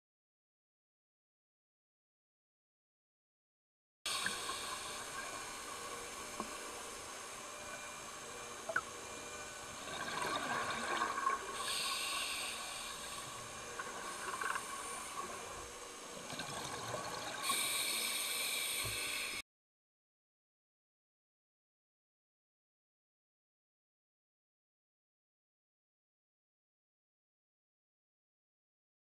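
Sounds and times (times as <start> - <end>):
steady underwater hiss: 4.1 - 19.4
regulator bubbles rushing: 9.8 - 11.6, 16.2 - 17.5.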